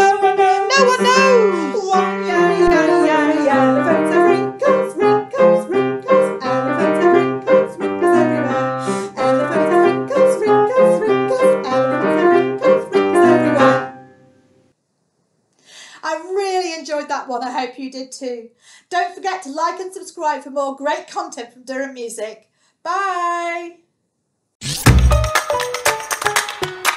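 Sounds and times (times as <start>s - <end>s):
keyboard backing music with beat: 24.8s - 26.9s.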